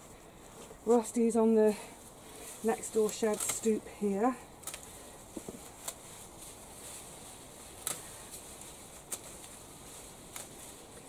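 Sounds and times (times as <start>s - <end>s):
faint outdoor hiss: 0.0s - 11.0s
hand snips cutting stems: 2.8s - 3.8s, 4.6s - 6.1s, 7.7s - 9.6s, 10.2s - 11.0s.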